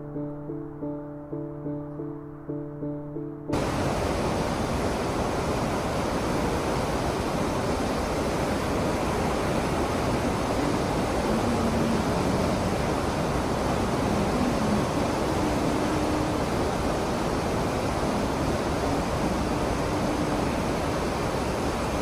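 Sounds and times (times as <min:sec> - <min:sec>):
soft music: 0:00.0 - 0:04.6
ship wake churning: 0:03.6 - 0:22.0
wind noise: 0:03.6 - 0:22.0.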